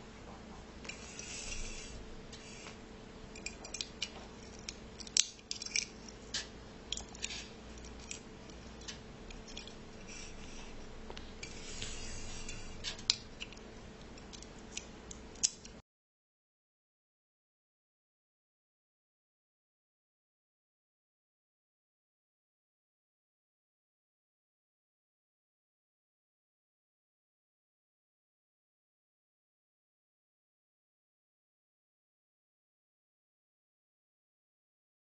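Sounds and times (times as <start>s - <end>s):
faint steady hum: 0.0s - 15.8s
scraping and rubbing: 0.9s - 2.8s, 5.5s - 13.6s
clicks and taps of small objects: 3.4s - 9.7s.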